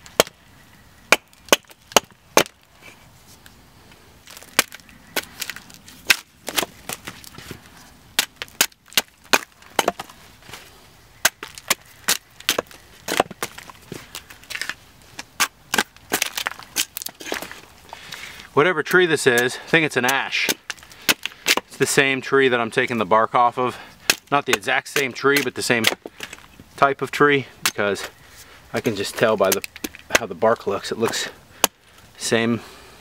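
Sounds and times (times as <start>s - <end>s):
axe chopping log: 0.0s - 0.4s, 1.1s - 2.6s, 4.3s - 7.4s, 8.2s - 10.2s, 11.2s - 13.7s, 14.5s - 17.5s, 20.0s - 21.8s, 24.0s - 26.4s.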